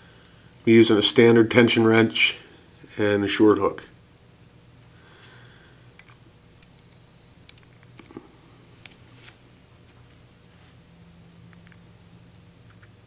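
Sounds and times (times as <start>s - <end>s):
lock pick clicking on pins: 6.0s - 8.1s.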